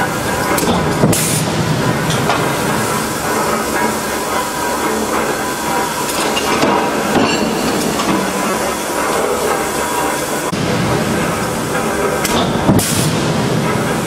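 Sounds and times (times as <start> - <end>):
forging press industrial din: 0.0 - 14.0
metallic knocks and clatters: 6.1 - 10.3.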